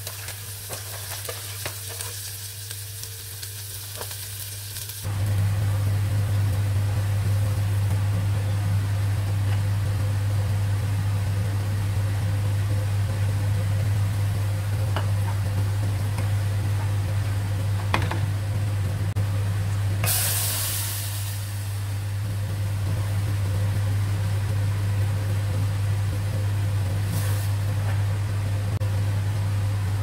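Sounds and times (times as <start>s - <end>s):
water hissing on hot onions: 0.0s - 5.1s, 20.0s - 21.9s
onions frying in a pot: 0.0s - 30.0s
low hum: 5.0s - 30.0s.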